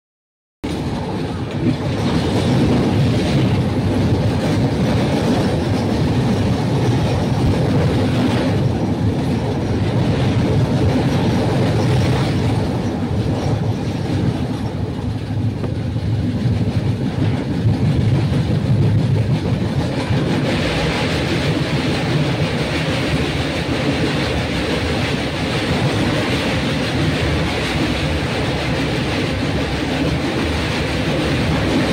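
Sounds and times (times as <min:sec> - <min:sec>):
train rumbling with wheel clatter: 0:00.6 - 0:31.9.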